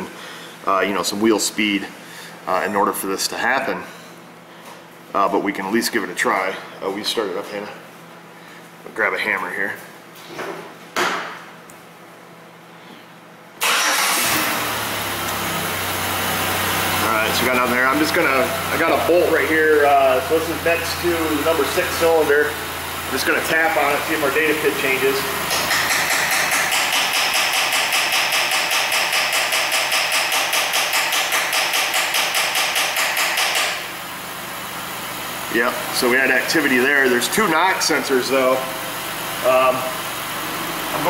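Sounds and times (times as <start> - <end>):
car engine starting and idling: 13.6 - 27.2, 37.9 - 41.0
hammer tapping on metal: 25.5 - 33.8.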